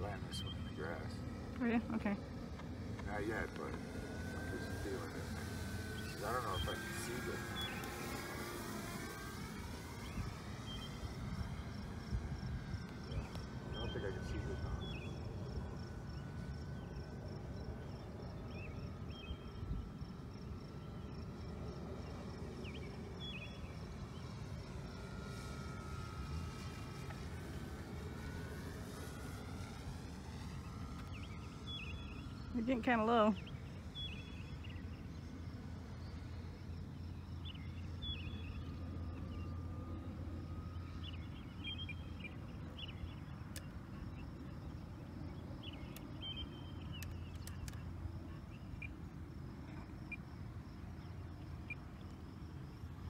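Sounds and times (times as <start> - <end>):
distant model plane motor whine: 0.0 - 53.0
insect chirping: 3.1 - 53.0
bird chirps: 3.4 - 11.2, 13.2 - 15.3, 30.4 - 32.6, 33.4 - 35.4, 36.0 - 39.6, 40.7 - 44.5, 45.2 - 49.0.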